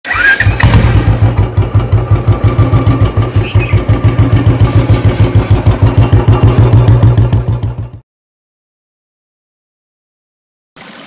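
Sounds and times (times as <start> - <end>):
motorcycle engine starting and idling: 0.0 - 8.0.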